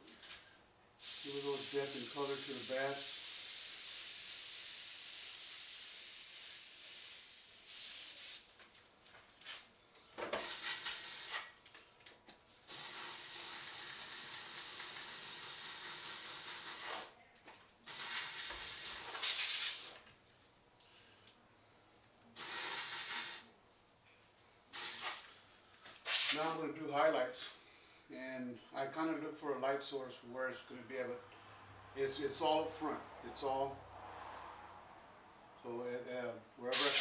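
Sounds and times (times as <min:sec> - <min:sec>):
airbrush spraying hiss: 0:01.0 - 0:08.6, 0:10.4 - 0:11.5, 0:12.7 - 0:17.2, 0:17.9 - 0:20.0, 0:22.4 - 0:23.5, 0:24.7 - 0:26.4, 0:36.7 - 0:37.0.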